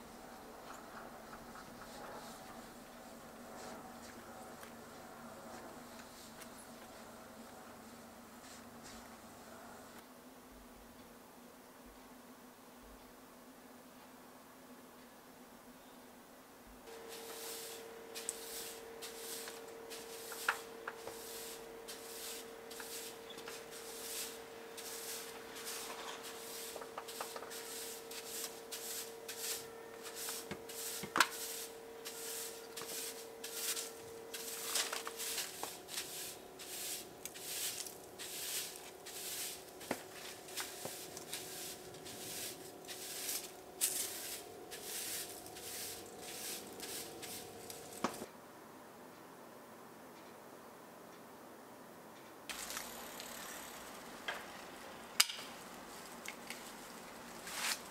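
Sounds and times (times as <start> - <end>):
broom sweeping tile floor: 0.8 - 10.0, 16.9 - 48.3, 55.9 - 57.9.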